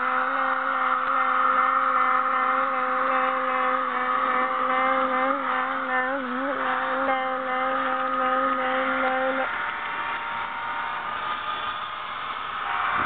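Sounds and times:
wheels rolling on track: 0:00.0 - 0:13.0.

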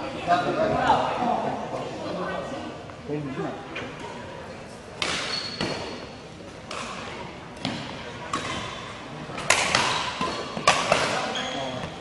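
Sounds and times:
racket hitting shuttlecock: 0:06.7 - 0:08.8, 0:09.4 - 0:11.3.

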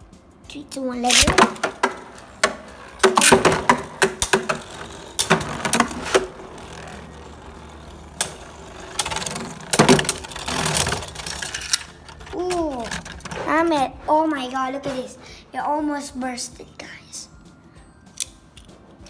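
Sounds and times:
spinning tops whirring: 0:00.8 - 0:14.8
sharp plastic clacks: 0:01.0 - 0:13.8.

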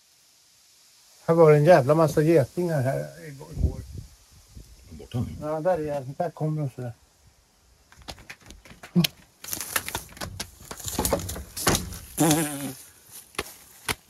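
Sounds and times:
man crying out: 0:12.2 - 0:12.8.

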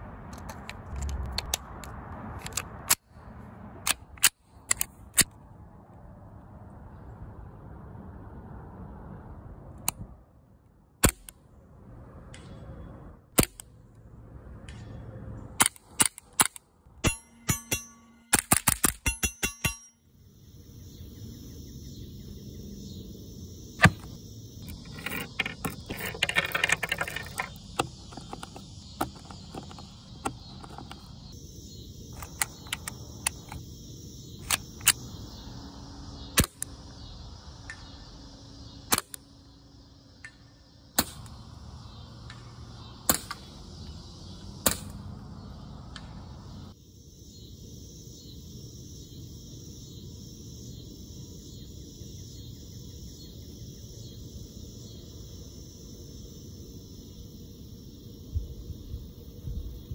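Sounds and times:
high background hiss: 0:27.6 - 0:59.9.

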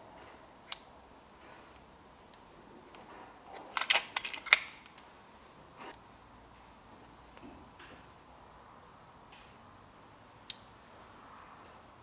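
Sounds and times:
air rifle action clicks: 0:03.7 - 0:05.1.

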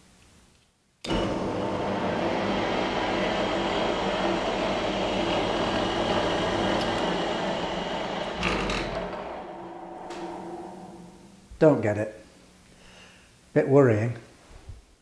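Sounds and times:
drill press motor humming: 0:01.1 - 0:11.6.

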